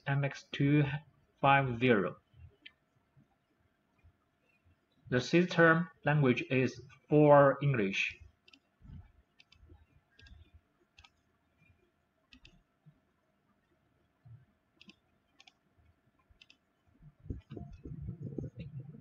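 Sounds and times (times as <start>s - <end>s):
faint steady hum: 0.0s - 19.0s
low rumbling handling noise: 17.1s - 19.0s.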